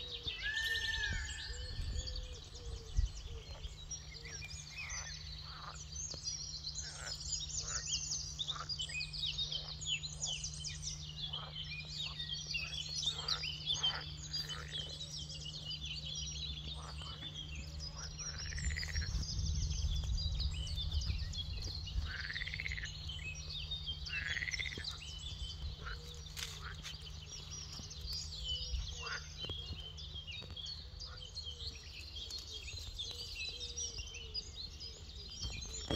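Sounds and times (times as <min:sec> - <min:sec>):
loud arching bird calls: 0:00.0 - 0:05.9, 0:24.0 - 0:25.0
low steady hum and rumble: 0:00.0 - 0:35.9
songbirds chirping and trilling: 0:00.0 - 0:35.9.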